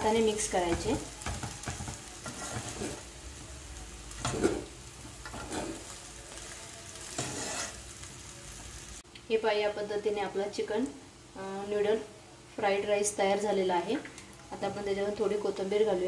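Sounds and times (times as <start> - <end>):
soft sizzle from hot pan: 0.0 - 16.0
spatula scraping a pan: 0.7 - 3.2, 4.1 - 7.9.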